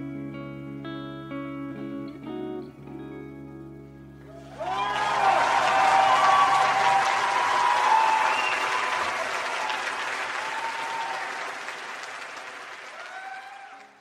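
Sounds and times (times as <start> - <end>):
audience applauding: 4.3 - 14.0
audience cheering: 4.3 - 14.0.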